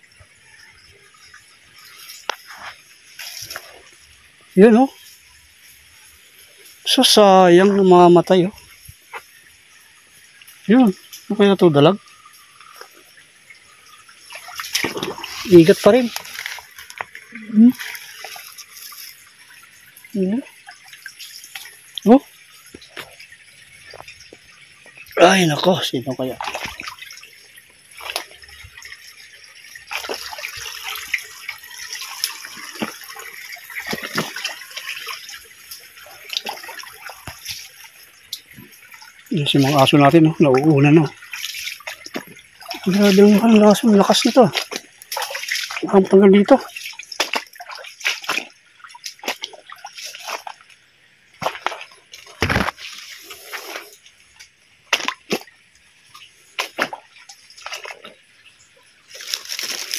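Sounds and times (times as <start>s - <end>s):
stream trickling over stones: 0.0s - 59.9s
water splashes: 0.0s - 59.9s
rustling: 59.1s - 59.9s.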